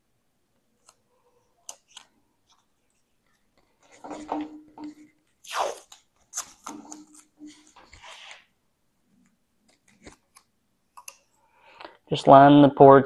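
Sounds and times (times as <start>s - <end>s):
tape crackling off roll: 3.6s - 8.6s
tape ripping: 5.4s - 8.5s.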